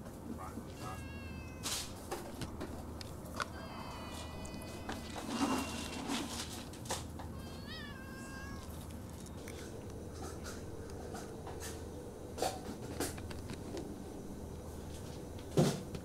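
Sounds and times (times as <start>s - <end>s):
cat meowing: 0.4s - 2.0s, 3.4s - 9.7s.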